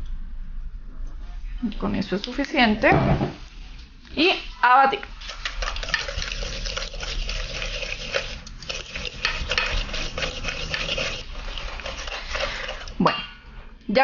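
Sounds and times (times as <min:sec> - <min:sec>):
whisk scraping metal bowl: 0:05.1 - 0:13.0.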